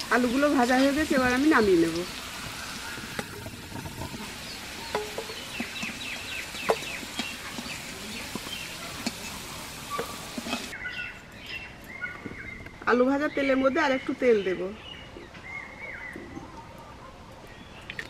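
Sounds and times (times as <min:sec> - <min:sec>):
metal spatula scraping a pan: 0:06.6 - 0:10.7.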